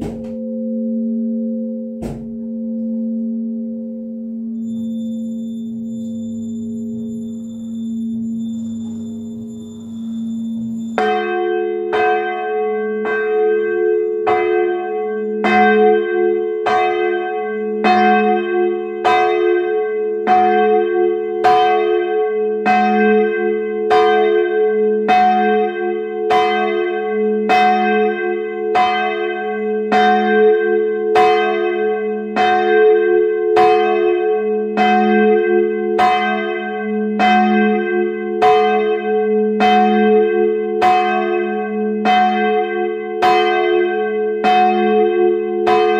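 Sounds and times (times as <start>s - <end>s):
church bell ringing: 0.0s - 45.9s.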